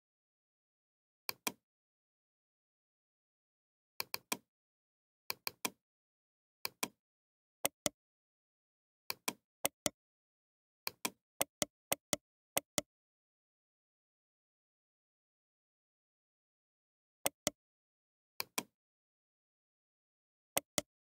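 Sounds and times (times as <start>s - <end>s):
computer mouse clicking: 1.3s - 1.6s, 5.3s - 5.8s, 6.6s - 7.0s, 18.4s - 18.7s.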